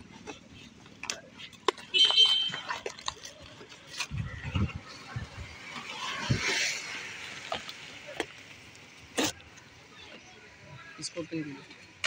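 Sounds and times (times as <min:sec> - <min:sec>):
cardboard and packaging rustling: 0:00.0 - 0:09.4.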